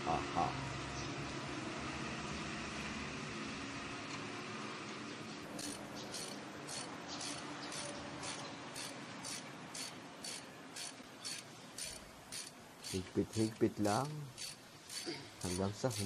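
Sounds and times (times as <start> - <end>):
ratchet wrench clicking: 5.5 - 16.0.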